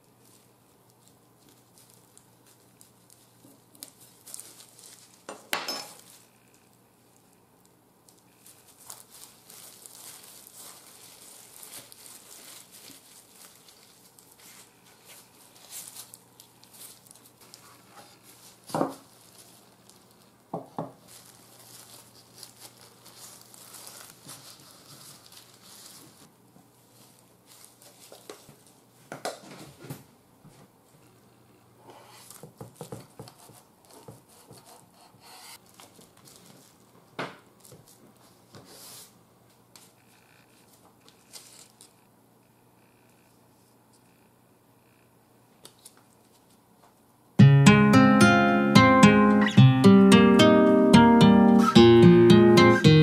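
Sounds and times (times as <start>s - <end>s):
cling film crinkling: 0.0s - 5.3s, 8.0s - 28.8s.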